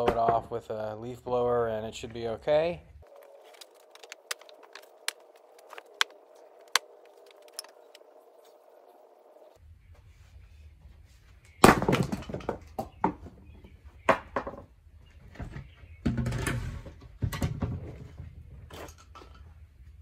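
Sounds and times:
logs knocking and clattering: 3.5s - 8.0s, 11.7s - 13.4s.

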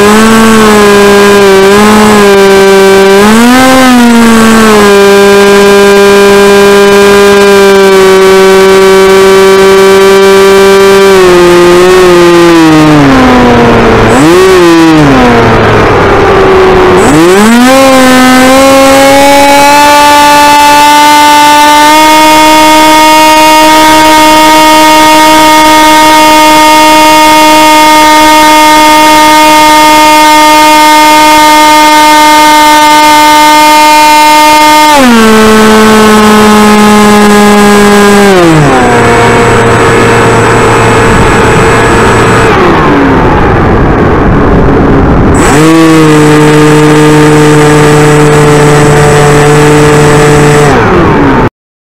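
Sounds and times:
electric motor and propeller whine: 0.0s - 51.5s.

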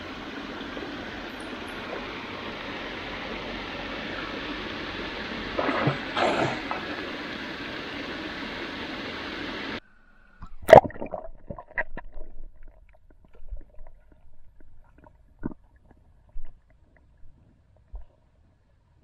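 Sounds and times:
stream water rushing: 0.0s - 9.8s.

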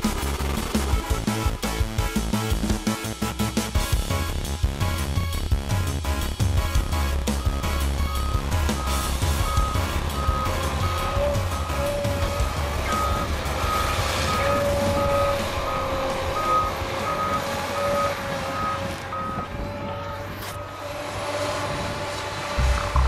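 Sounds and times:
low engine drone: 0.0s - 23.0s
backup alarm beeping: 7.0s - 20.2s.

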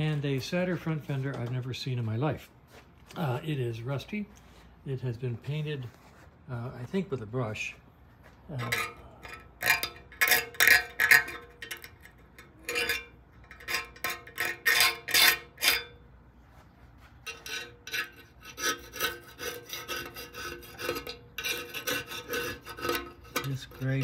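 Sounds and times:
scraper blade scraping metal: 12.6s - 16.0s, 17.3s - 24.0s.

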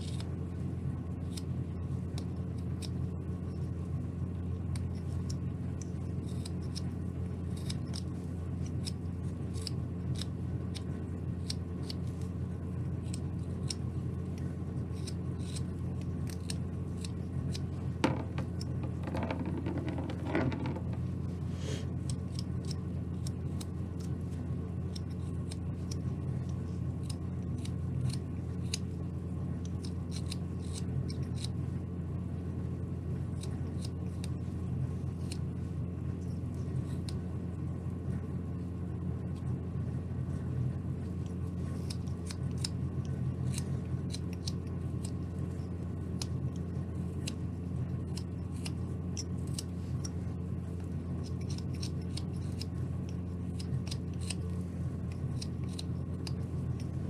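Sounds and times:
steady low hum: 0.0s - 57.0s
scratchy rubbing: 17.9s - 21.9s.

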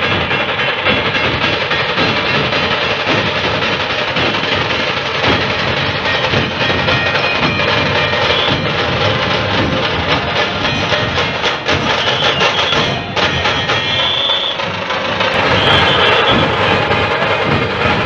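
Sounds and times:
procession drums playing: 0.0s - 18.0s
short high tones: 10.6s - 14.8s.

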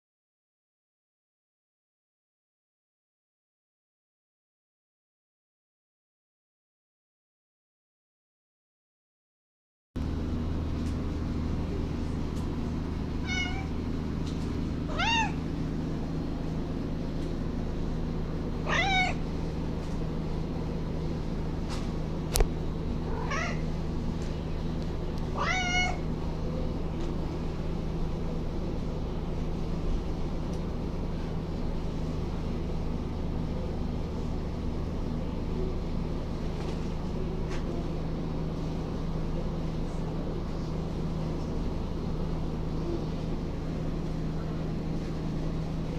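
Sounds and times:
steady low hum: 10.0s - 45.9s
cat meowing: 13.2s - 13.8s, 14.9s - 15.4s, 18.6s - 19.2s, 23.1s - 23.7s, 25.4s - 26.1s.

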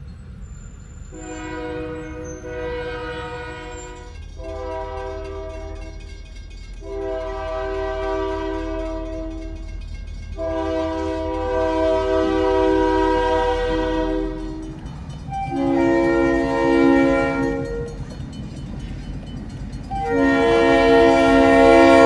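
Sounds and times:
low engine rumble: 0.0s - 22.0s
locomotive air horn blasts: 1.1s - 6.1s, 6.8s - 9.6s, 10.4s - 18.0s, 19.9s - 22.0s.

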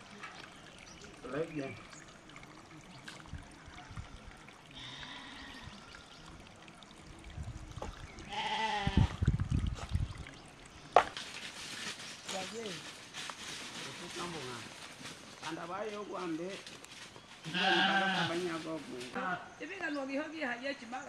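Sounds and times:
animal bleating: 4.8s - 5.6s, 8.2s - 9.2s, 17.4s - 18.4s.

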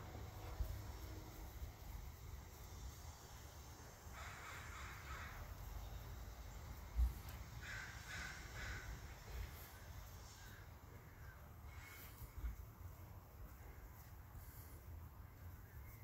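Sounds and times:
crow cawing: 4.1s - 5.6s, 7.6s - 12.3s.

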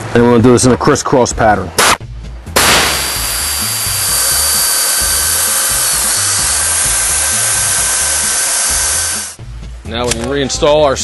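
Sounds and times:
power ratchet whirring: 2.6s - 9.4s.

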